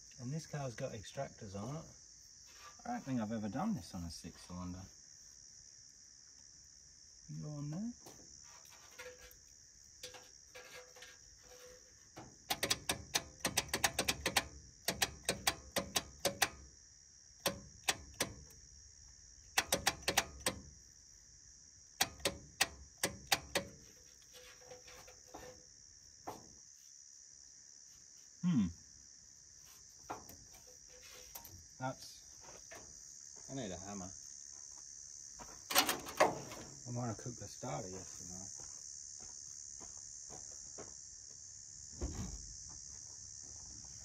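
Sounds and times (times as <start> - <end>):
crickets chirping: 0.0 - 44.0
starter solenoid clicking rapidly: 12.5 - 16.6, 17.4 - 18.6, 19.6 - 20.7, 22.0 - 23.8.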